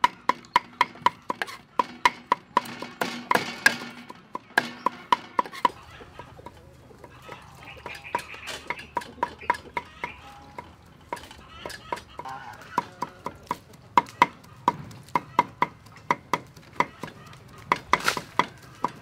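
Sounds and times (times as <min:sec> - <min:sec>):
cleaver chopping on wooden board: 0:00.0 - 0:05.8, 0:12.7 - 0:19.0.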